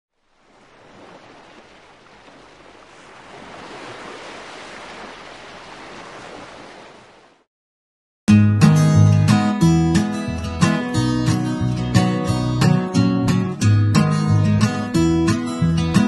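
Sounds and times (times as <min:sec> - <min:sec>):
ocean surf washing in: 0:00.2 - 0:07.5
acoustic guitar music: 0:08.3 - 0:16.0.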